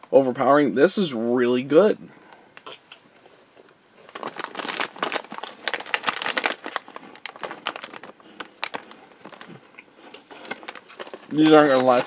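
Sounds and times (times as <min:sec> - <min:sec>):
plastic wrapper crinkling: 0:03.9 - 0:12.0.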